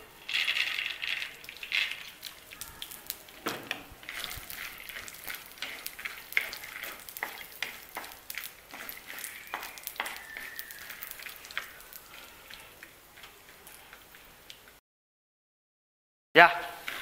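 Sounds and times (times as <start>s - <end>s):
peanuts sizzling in hot fat: 0.0s - 14.8s, 16.7s - 17.0s
wooden spatula scraping clay pan: 3.5s - 14.4s.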